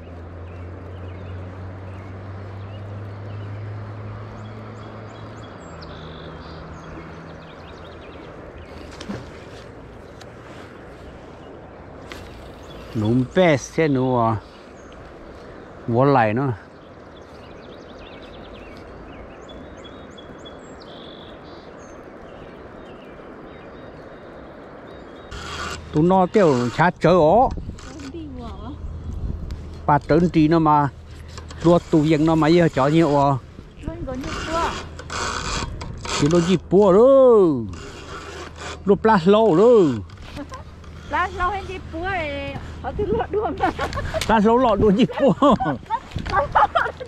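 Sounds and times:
birds chirping and whistling: 0:04.3 - 0:09.4, 0:16.4 - 0:29.1
motor humming: 0:29.7 - 0:47.0.

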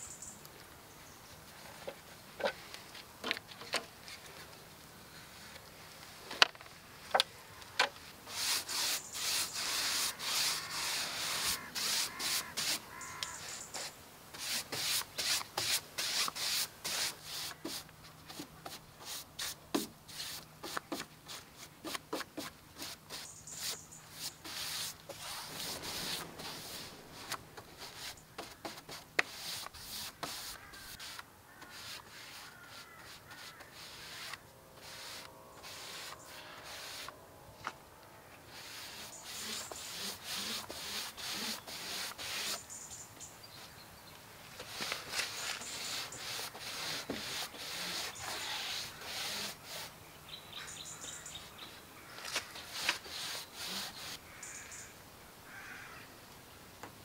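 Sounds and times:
paintbrush scrubbing on wood: 0:08.3 - 0:37.1, 0:38.5 - 0:42.6, 0:44.6 - 0:49.9, 0:52.4 - 0:54.2.

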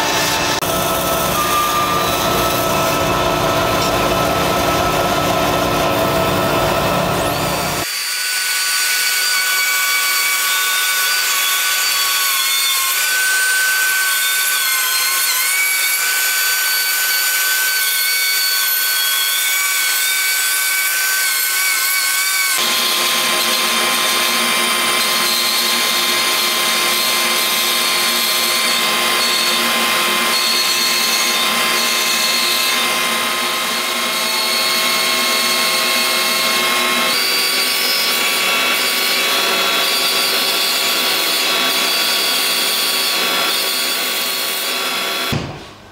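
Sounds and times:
power tool drone with low hum: 0:00.0 - 0:09.7, 0:22.6 - 0:45.4
router cutting wood: 0:00.0 - 0:45.4.

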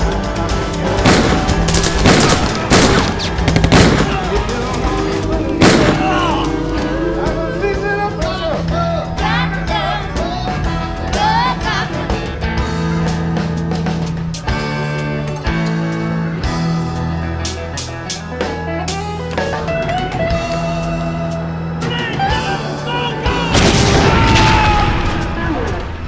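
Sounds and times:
film score music: 0:00.0 - 0:26.0
gunshots: 0:01.0 - 0:04.7, 0:05.6 - 0:06.4.

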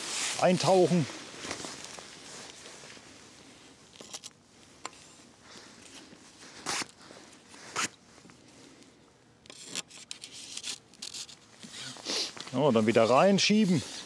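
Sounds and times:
fishing tackle rustling and clicking: 0:09.5 - 0:11.4.

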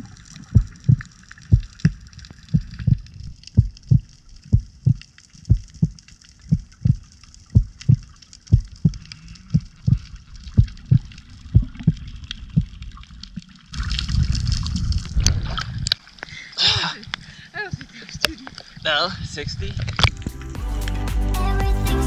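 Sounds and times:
water rushing and splashing: 0:00.0 - 0:20.6
heartbeat thumps: 0:00.5 - 0:12.8.

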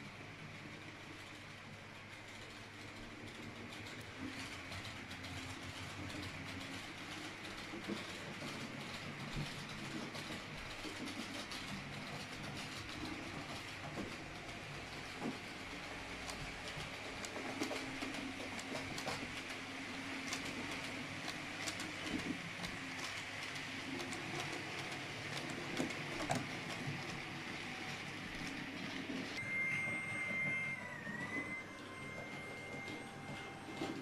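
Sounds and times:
model train wheels clicking: 0:00.6 - 0:29.4
steady high whine: 0:29.4 - 0:34.0.

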